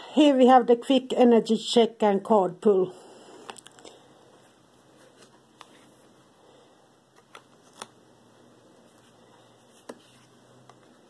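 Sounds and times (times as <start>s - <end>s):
cards handled on cloth: 8.8s - 11.0s
faint card clicks and taps: 9.8s - 10.9s.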